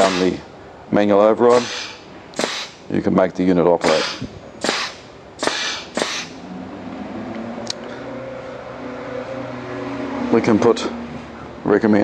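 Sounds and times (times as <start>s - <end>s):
compressed air blasts: 0.0s - 0.5s, 1.5s - 2.9s, 3.8s - 6.5s.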